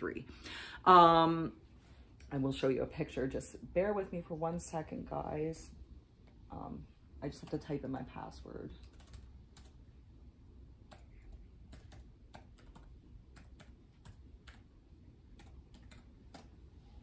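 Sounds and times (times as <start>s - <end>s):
computer keyboard typing: 8.8s - 9.8s, 10.9s - 14.7s, 15.3s - 16.6s.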